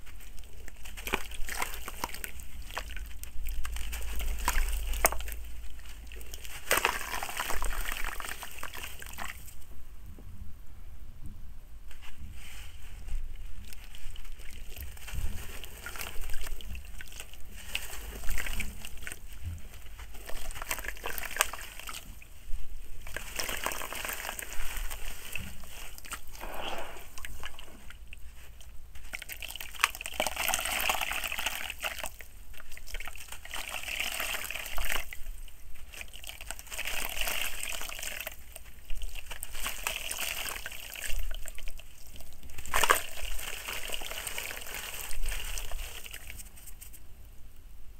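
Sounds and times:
water sloshing and splashing: 0.0 - 9.6, 13.6 - 22.4, 23.0 - 47.0
soil crunching: 0.0 - 9.7, 12.9 - 47.0.

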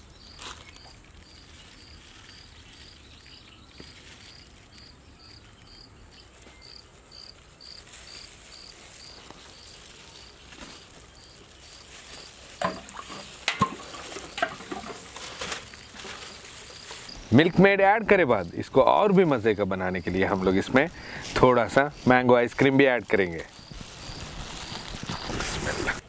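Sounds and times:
cricket chirping: 0.0 - 26.0
tins knocking: 12.6 - 15.7.

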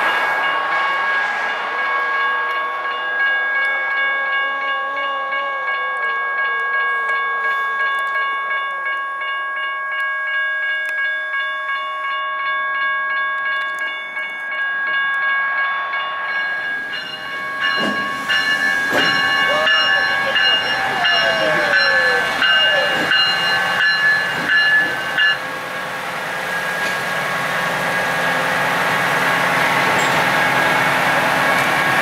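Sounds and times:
lower sliding tone: 0.0 - 4.5
train rumbling: 0.0 - 9.2, 13.4 - 32.0
crossing bell ringing: 0.0 - 32.0.

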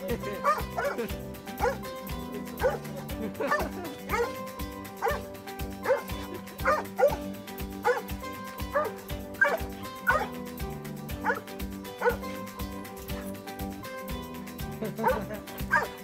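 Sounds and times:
background music: 0.0 - 16.0
dog barking: 0.4 - 1.0, 1.6 - 1.8, 2.6 - 2.8, 3.5 - 4.4, 5.0 - 5.2, 5.8 - 7.2, 7.8 - 8.1, 8.7 - 10.3, 11.2 - 11.4, 12.0 - 12.2, 15.0 - 16.0.

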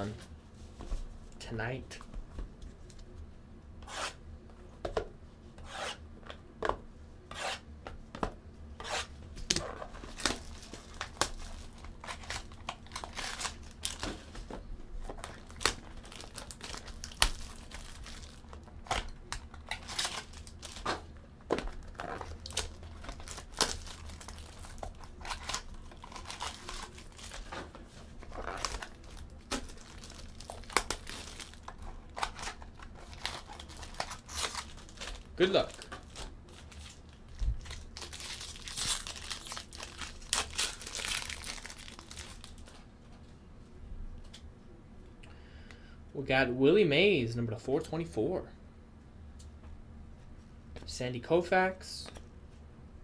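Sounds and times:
plastic wrapping crinkling: 9.5 - 42.8.

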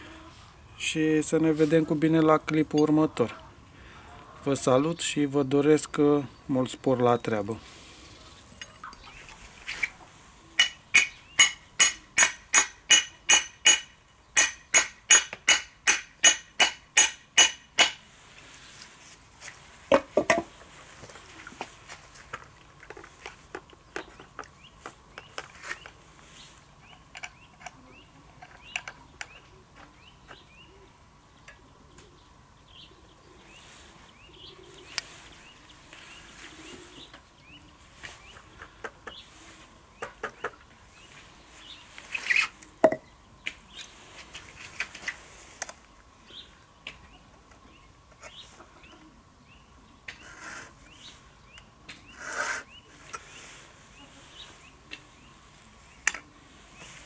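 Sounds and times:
small birds chirping: 2.8 - 12.2, 23.6 - 57.0.

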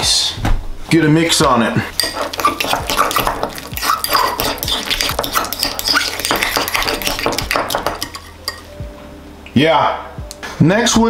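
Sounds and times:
fork clinking and scraping bowl: 1.9 - 8.8.

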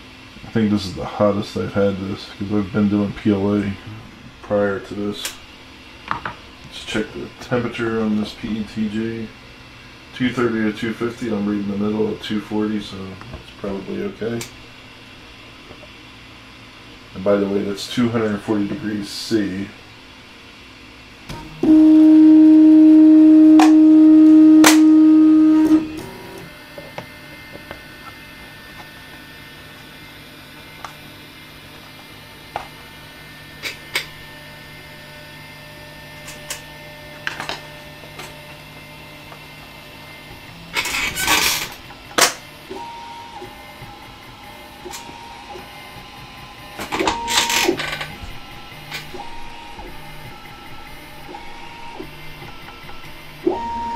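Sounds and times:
stepper motors whining: 21.3 - 29.3
printer ticking and whirring: 33.9 - 53.9.

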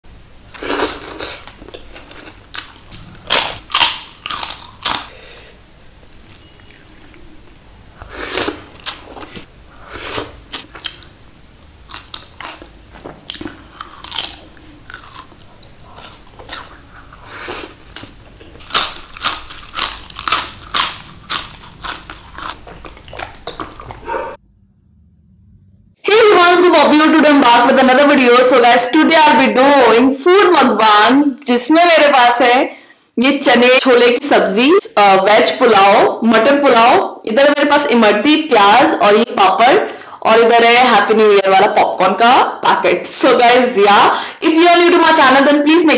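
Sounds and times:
person chewing crunchy food: 0.5 - 5.2, 6.0 - 7.4, 8.0 - 24.4.

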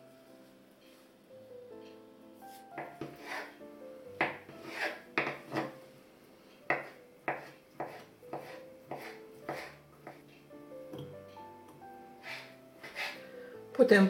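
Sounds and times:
knife chopping on wooden board: 4.2 - 5.7, 6.7 - 10.2.

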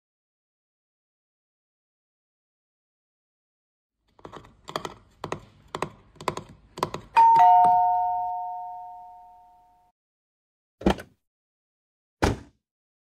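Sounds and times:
two-note doorbell chime: 7.2 - 9.9.

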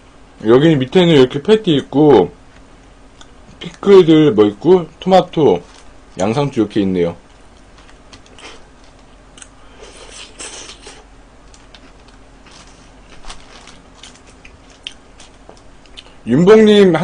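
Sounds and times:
faint steady hum: 0.0 - 17.0
soft chewing: 2.5 - 3.9, 7.2 - 16.2
paper wrapper crinkling: 5.6 - 5.9, 11.5 - 15.6.

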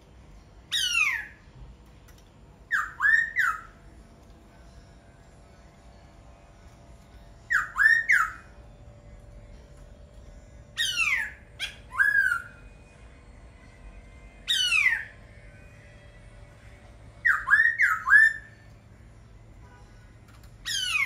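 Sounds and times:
faint steady hum: 0.0 - 21.0
bird singing sweeping notes: 2.7 - 3.8, 7.4 - 8.6, 10.7 - 12.7, 14.4 - 15.2, 17.2 - 18.6, 20.6 - 21.0.

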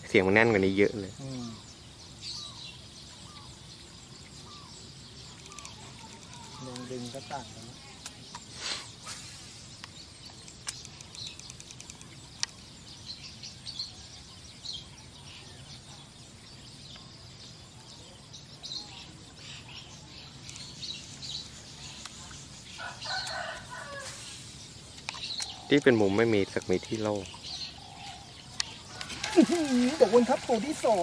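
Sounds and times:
small birds chirping: 0.0 - 31.0
sharp clicks: 5.3 - 6.9, 9.8 - 12.6.

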